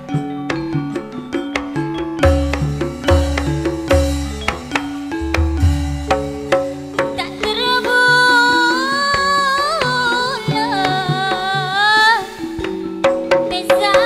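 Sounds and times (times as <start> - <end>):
hand drum strokes: 0.0 - 14.0
metallophone notes: 0.0 - 14.0
woman singing into microphone: 7.1 - 12.6, 13.4 - 14.0.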